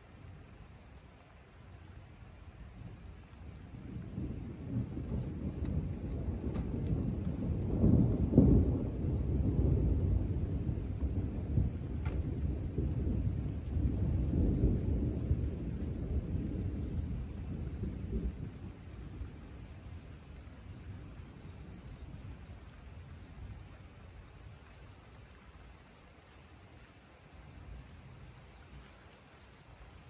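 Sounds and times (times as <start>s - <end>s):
thunder rumbling: 2.6s - 25.4s.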